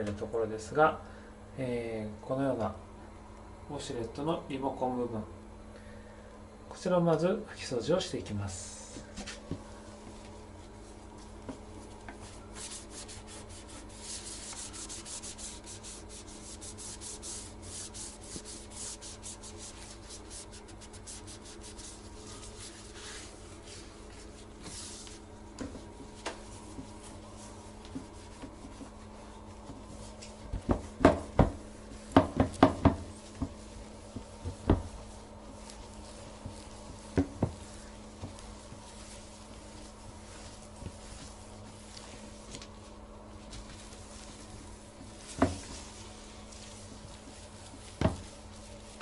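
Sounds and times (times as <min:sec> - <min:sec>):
cloth rubbing on plastic: 0:09.3 - 0:30.9, 0:33.0 - 0:49.0.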